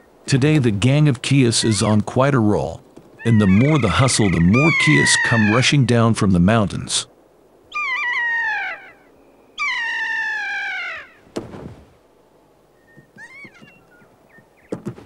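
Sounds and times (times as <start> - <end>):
short chirping calls: 7.7 - 11.2, 12.8 - 14.8.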